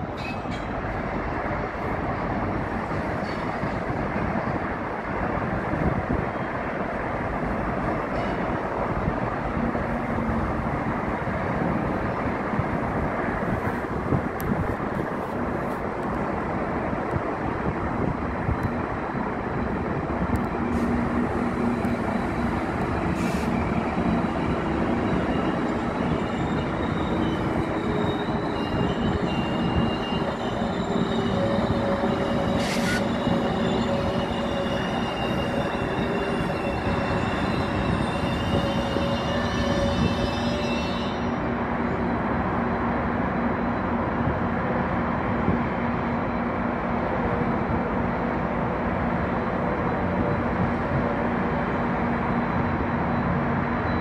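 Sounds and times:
train wheels rumbling on track: 0.0 - 54.0
high wheel squeal: 23.1 - 41.5.

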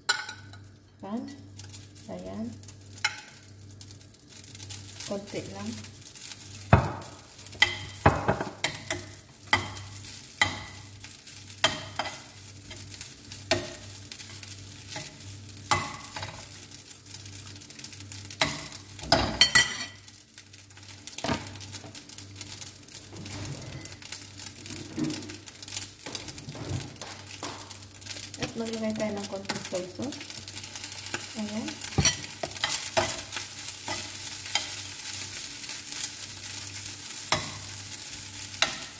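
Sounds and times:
rice sizzling in frying pan: 0.0 - 38.9
metal spoon scraping and knocking pan: 31.0 - 34.9, 38.6 - 38.9.

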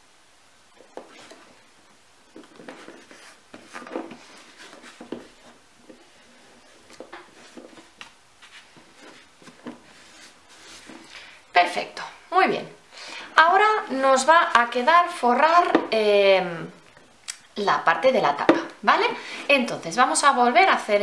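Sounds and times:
paper rustling and rubbing: 2.3 - 11.1.

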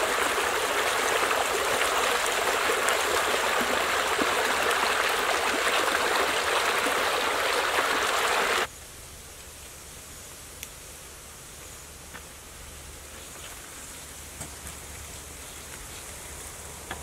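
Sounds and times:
stream running over rocks: 0.0 - 8.7.

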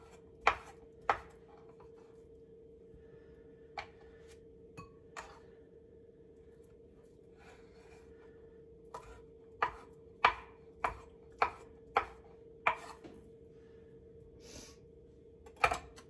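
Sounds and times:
knife chopping on cutting board: 0.0 - 1.8, 8.9 - 13.1
faint steady hum: 0.0 - 16.0.

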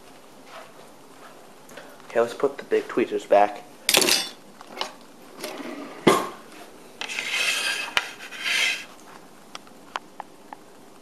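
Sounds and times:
utensil clattering into drawer: 3.9 - 4.4
rasping scrapes: 7.0 - 9.0.

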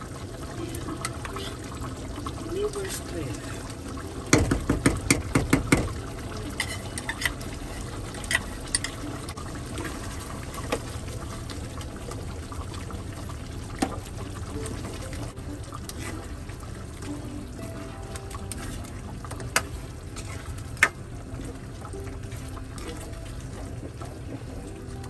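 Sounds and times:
ladle stirring thick sauce: 0.8 - 25.0
metal spoon knocking on pan: 4.3 - 6.0.

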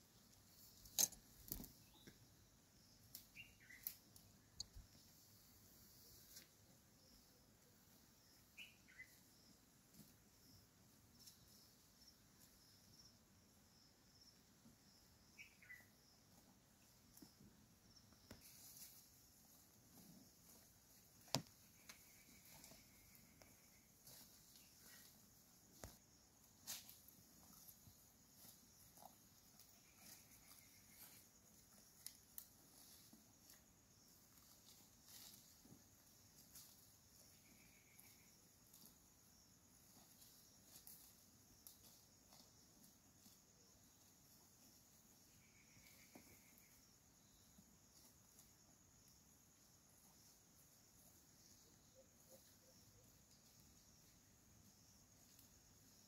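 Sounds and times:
soft high chirping: 0.8 - 5.0, 8.2 - 9.6, 10.4 - 19.1
faint rustles: 3.4 - 10.3, 18.2 - 39.1.

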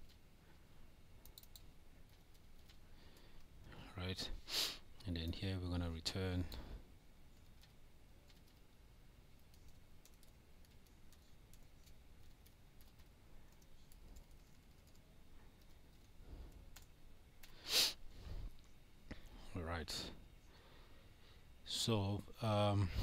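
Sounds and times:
keystrokes on computer keyboard: 1.2 - 3.5, 7.3 - 8.7, 9.3 - 17.6.

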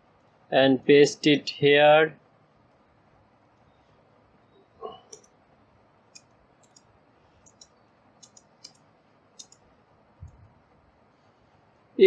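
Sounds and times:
computer keyboard and mouse clicks: 5.1 - 5.4, 6.1 - 10.4.

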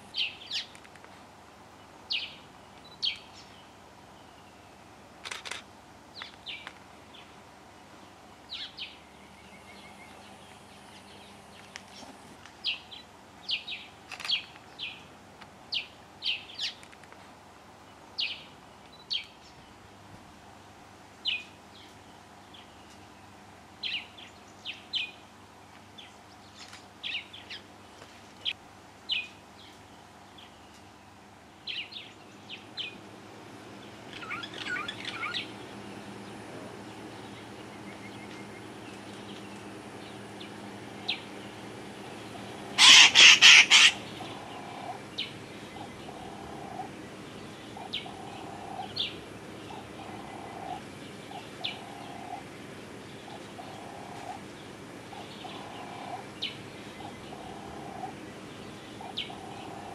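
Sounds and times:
faint steady hum: 0.0 - 59.9
starlings alarm calls: 33.7 - 59.9.

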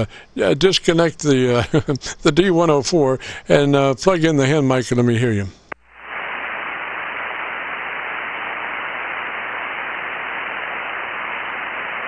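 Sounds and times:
radio static hiss: 4.8 - 12.0.

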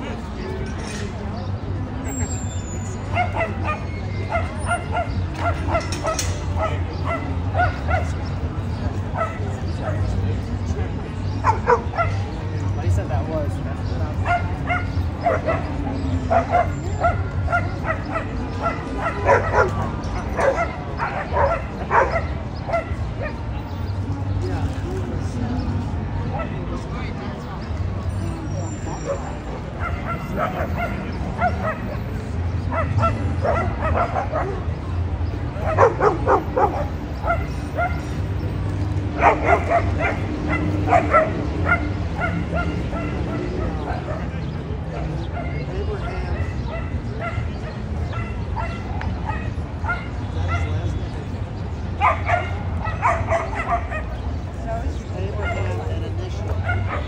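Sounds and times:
dog barking: 3.1 - 8.2, 11.4 - 12.2, 14.2 - 23.5, 29.0 - 34.8, 35.6 - 38.2, 39.2 - 45.6, 46.4 - 50.9, 52.0 - 54.2, 56.5 - 57.0.

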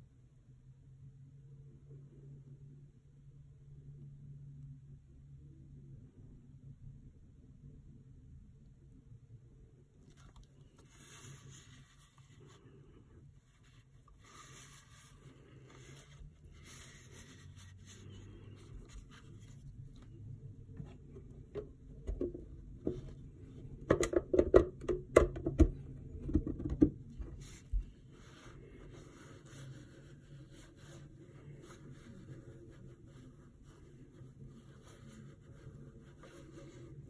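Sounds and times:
faint handling rustle: 10.0 - 23.8, 27.1 - 37.0
hard plastic clicks and knocks: 23.8 - 27.0.

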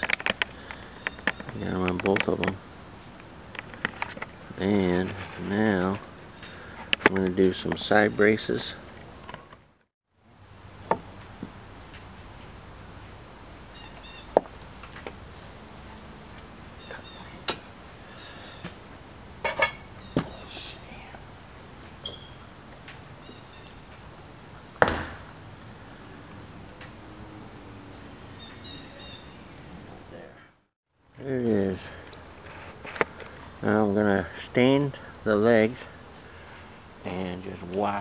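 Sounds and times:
insects chirping: 0.0 - 38.0
wood and tools knocking: 10.8 - 11.5.

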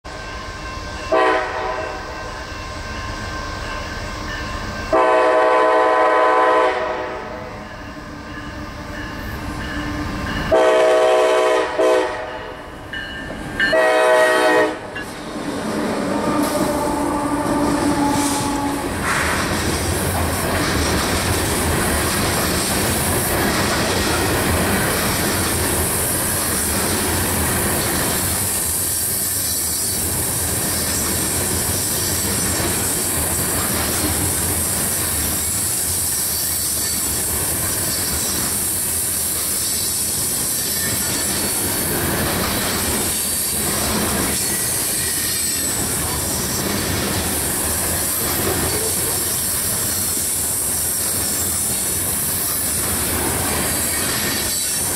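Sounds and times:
train wheels rumbling and clattering: 7.4 - 54.9.

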